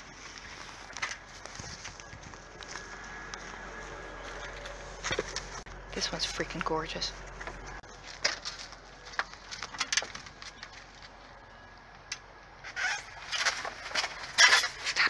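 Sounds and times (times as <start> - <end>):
plastic pots clicking in a dumpster: 8.0 - 11.2.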